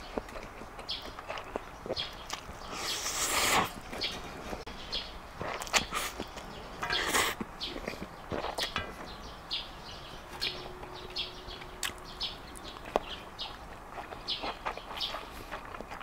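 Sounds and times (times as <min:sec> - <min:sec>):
noodles slurped and chewed: 0:00.0 - 0:04.6, 0:05.4 - 0:08.8, 0:12.8 - 0:16.0.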